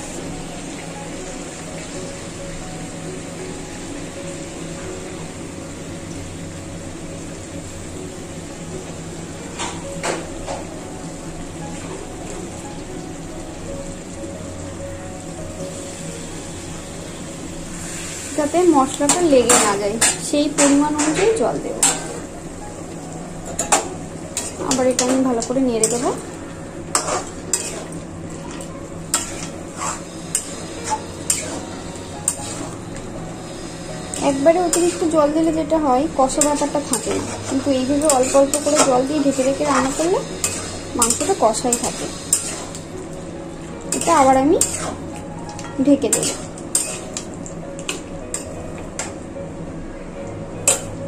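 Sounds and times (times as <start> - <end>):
curry sizzling: 0.0 - 51.0
spatula scraping metal pan: 26.9 - 28.0, 36.3 - 42.8.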